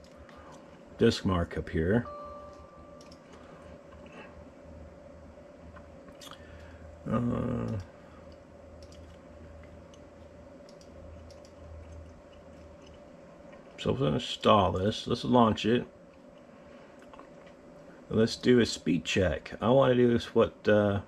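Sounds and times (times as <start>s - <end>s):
steady low hum: 0.0s - 21.0s
computer mouse clicks: 3.0s - 3.3s, 7.6s - 13.0s
man humming: 7.0s - 8.1s.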